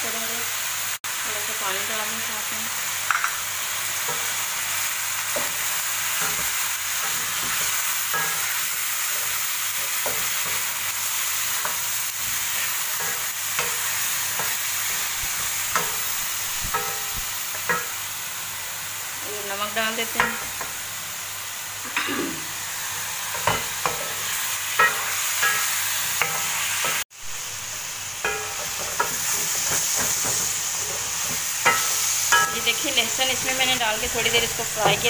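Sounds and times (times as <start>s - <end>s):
meat sizzling in hot oil: 0.0s - 35.0s
spatula scraping and tapping pan: 6.2s - 8.6s, 9.2s - 10.7s, 11.5s - 18.0s, 20.1s - 20.8s, 28.2s - 35.0s.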